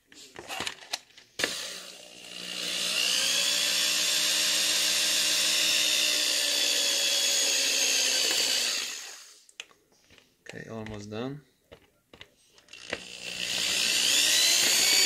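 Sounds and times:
electric drill motor whining: 0:01.4 - 0:09.4, 0:12.7 - 0:15.0.

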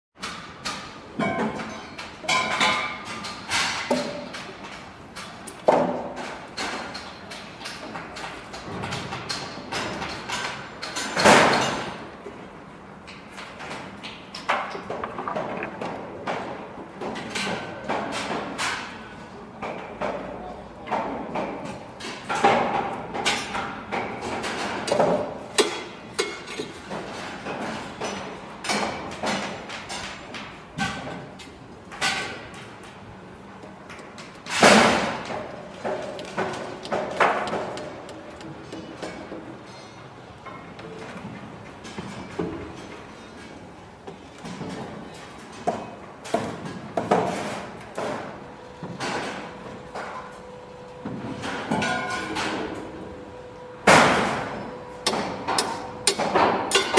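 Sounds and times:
construction background din: 0:00.2 - 0:56.9
metal knocks and clanks: 0:13.6 - 0:18.9
hammer blows and metallic clanks: 0:53.9 - 0:56.9.

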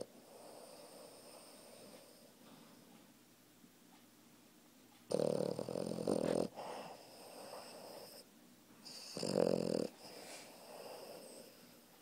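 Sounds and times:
puppy snoring loudly: 0:00.0 - 0:02.1, 0:05.1 - 0:11.7
soft breath: 0:06.2 - 0:08.3, 0:09.9 - 0:12.0.

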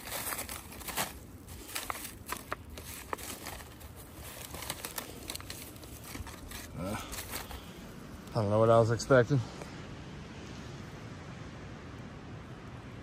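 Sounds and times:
dry leaves crunching underfoot: 0:00.0 - 0:07.8.

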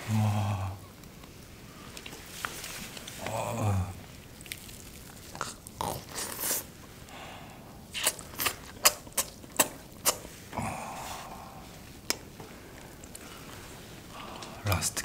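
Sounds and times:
sucking and slurping while eating: 0:00.0 - 0:15.0
wet mouth smacks and clicks: 0:04.4 - 0:06.6, 0:07.9 - 0:10.3.

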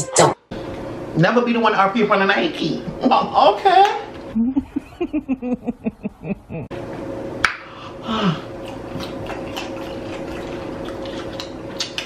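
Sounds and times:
faint background hum: 0:00.0 - 0:12.0
person humming mm: 0:08.0 - 0:08.5
chewing: 0:08.6 - 0:12.0.

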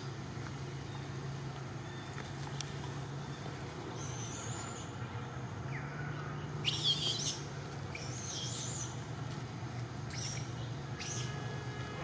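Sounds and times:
birds chirping: 0:05.6 - 0:09.0.

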